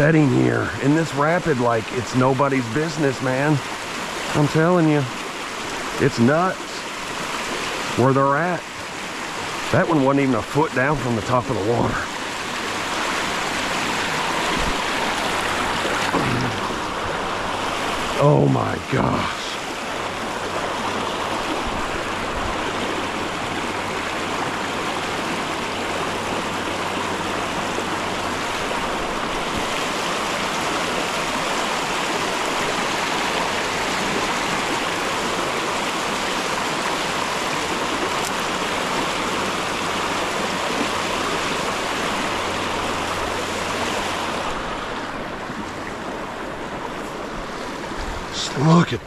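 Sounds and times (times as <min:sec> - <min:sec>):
creek water rushing: 0:00.0 - 0:49.0.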